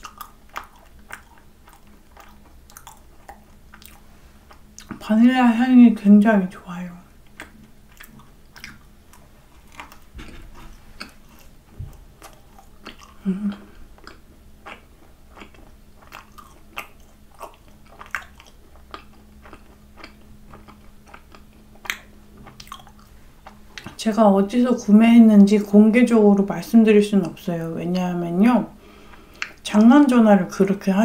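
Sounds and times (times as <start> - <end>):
chewing crunching: 0.0 - 5.1, 7.2 - 24.0, 29.1 - 29.6
closed-mouth hum: 0.0 - 31.0
sticky mouth clicks: 7.3 - 8.9.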